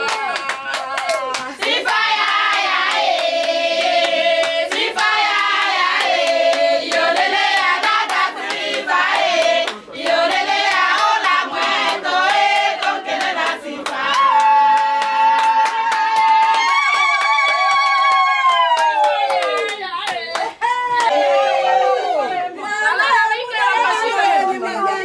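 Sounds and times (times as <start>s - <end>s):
rhythmic hand-clapping: 0.0s - 21.3s
women singing in unison: 0.4s - 15.5s.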